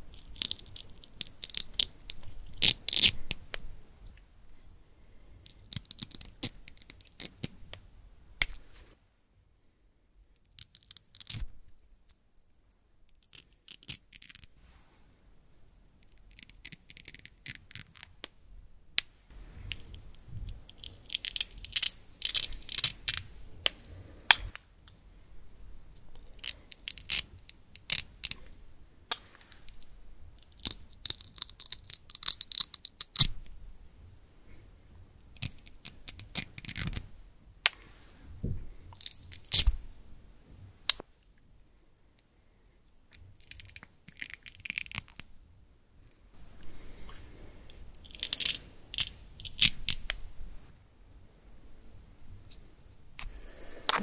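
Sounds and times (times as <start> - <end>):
velcro ripping: 39.0 - 39.8.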